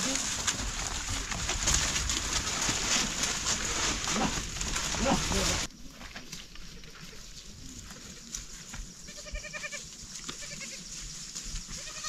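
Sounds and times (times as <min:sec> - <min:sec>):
goat bleating: 0:09.1 - 0:10.8, 0:11.8 - 0:12.0.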